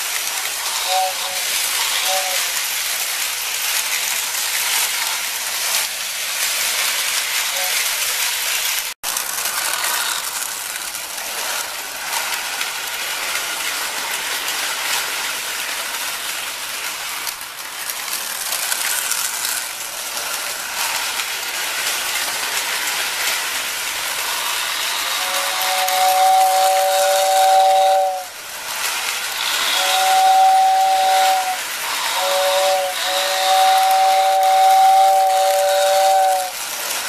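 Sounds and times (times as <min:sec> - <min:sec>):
toy train clattering on track: 0:00.0 - 0:37.0
toy train whistle two-note tone: 0:00.7 - 0:02.6, 0:07.5 - 0:07.9, 0:24.7 - 0:28.3, 0:29.5 - 0:36.6.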